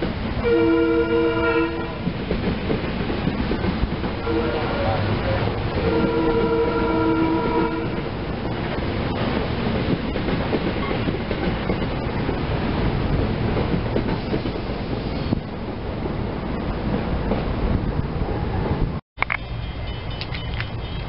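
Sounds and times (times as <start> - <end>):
train rumbling: 0.0 - 21.0
train horn chord: 0.4 - 2.1, 4.2 - 8.1.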